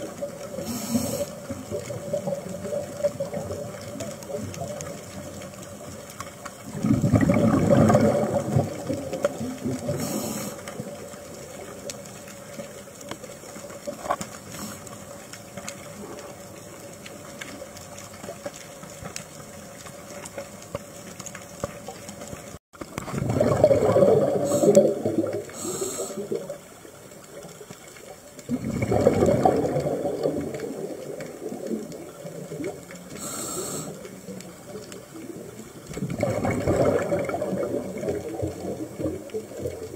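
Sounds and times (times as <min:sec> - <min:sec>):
gurgling exhaled bubbles: 0:00.0 - 0:05.8, 0:06.4 - 0:12.7, 0:22.8 - 0:27.5, 0:28.3 - 0:39.9
regulator hiss: 0:00.6 - 0:01.5, 0:25.5 - 0:26.4, 0:33.1 - 0:34.2.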